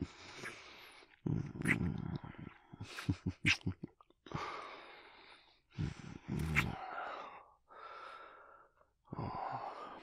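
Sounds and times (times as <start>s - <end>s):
man chuckling breathily: 2.8s - 4.1s.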